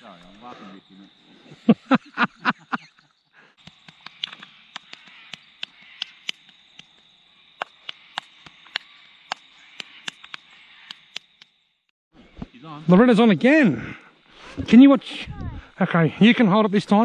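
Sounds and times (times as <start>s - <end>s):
high-pitched insect drone: 0.0s - 11.8s
burst of laughter: 1.5s - 3.5s
sharp clicks: 3.6s - 6.9s, 7.6s - 11.5s.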